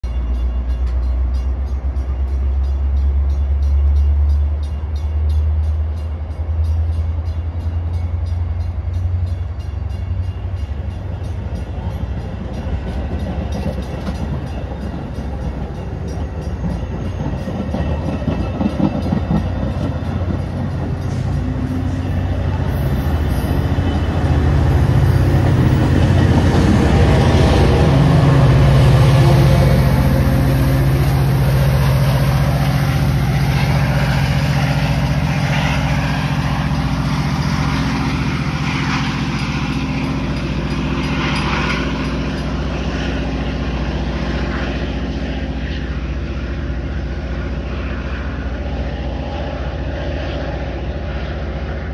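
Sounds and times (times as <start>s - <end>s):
diesel locomotive engine: 0.0s - 51.9s
low train hum: 0.0s - 51.9s
train wheels clacking over rail joints: 11.2s - 24.0s.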